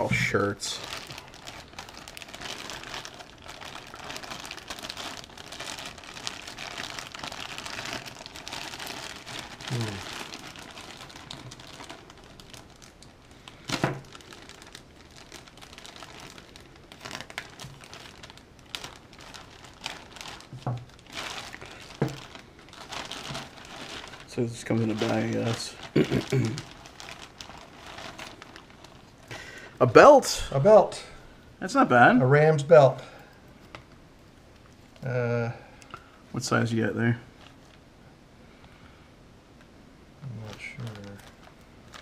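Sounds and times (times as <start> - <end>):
plastic bag crinkling: 0.0 - 29.8, 35.9 - 37.8, 40.3 - 42.0.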